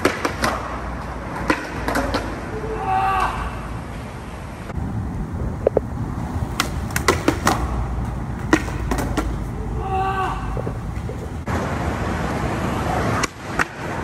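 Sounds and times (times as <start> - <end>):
steady low rumble: 4.5 - 11.5
skateboard clattering on concrete: 6.5 - 9.6.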